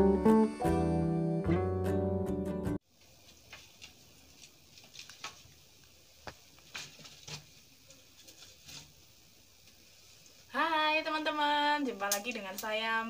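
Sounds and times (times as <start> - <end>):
soft hiss: 2.8 - 13.0
firewood crackling: 2.9 - 13.0.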